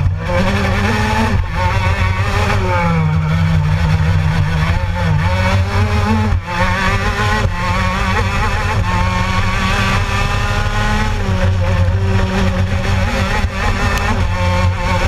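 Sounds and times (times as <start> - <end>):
racing kart engine revving: 0.0 - 15.0.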